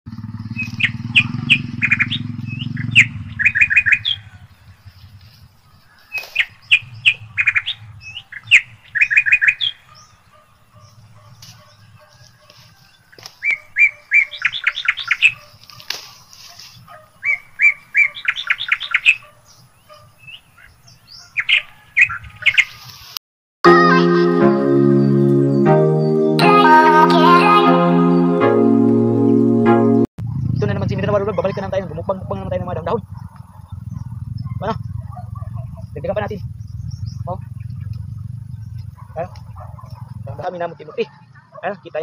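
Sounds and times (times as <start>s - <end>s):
bird singing high chirps: 0.4s - 16.3s, 17.2s - 22.8s, 31.6s - 40.4s
low rumble: 30.2s - 40.7s.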